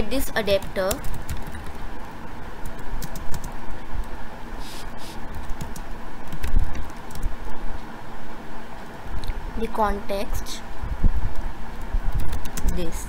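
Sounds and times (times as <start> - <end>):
low background hum: 0.0 - 13.0
keyboard typing: 0.5 - 1.8, 2.6 - 3.6, 5.3 - 7.3, 12.1 - 12.8.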